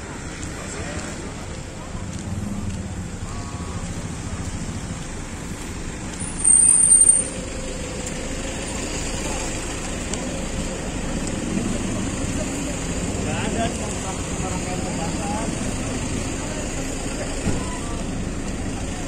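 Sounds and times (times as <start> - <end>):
vehicles rumbling: 0.0 - 19.0.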